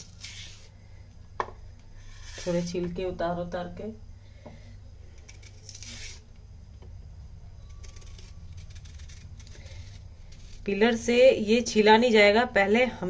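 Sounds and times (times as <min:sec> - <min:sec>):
knife scraping banana peel: 0:00.0 - 0:00.7, 0:02.0 - 0:02.7, 0:05.2 - 0:06.3, 0:07.6 - 0:11.1
steady low hum: 0:00.0 - 0:13.0.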